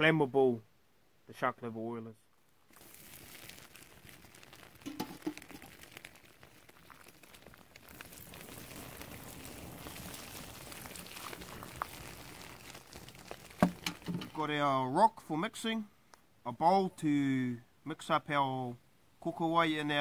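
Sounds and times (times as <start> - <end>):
oil sizzling on embers: 2.6 - 14.6
sharp pops: 2.7 - 10.3, 10.9 - 14.4.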